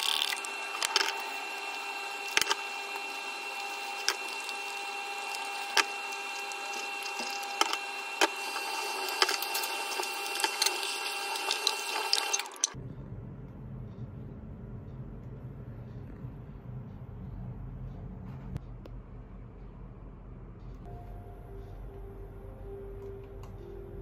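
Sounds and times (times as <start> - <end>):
low hum: 12.7 - 24.0.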